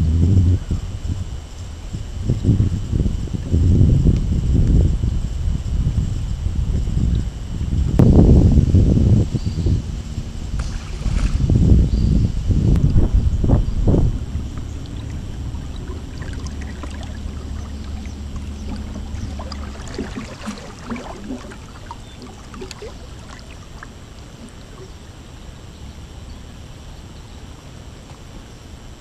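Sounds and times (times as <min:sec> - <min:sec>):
water lapping against hull: 0:06.4 - 0:28.4.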